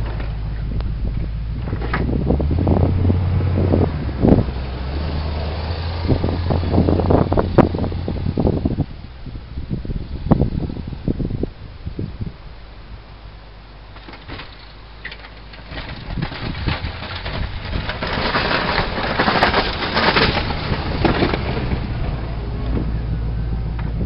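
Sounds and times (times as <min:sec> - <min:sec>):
plow scraping through snow: 0:00.0 - 0:08.9, 0:14.2 - 0:24.0
truck engine under load: 0:00.0 - 0:24.0.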